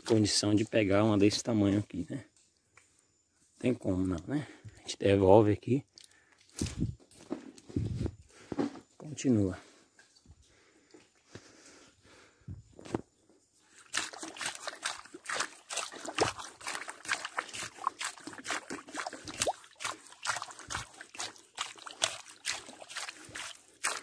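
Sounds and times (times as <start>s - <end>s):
wet mud crackling and popping: 13.7s - 24.0s.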